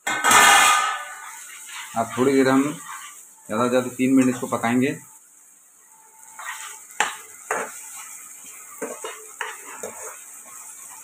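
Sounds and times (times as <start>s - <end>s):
metal spoon scraping a pan: 0.0s - 3.3s, 6.3s - 11.0s
onions sizzling in oil: 0.0s - 11.0s.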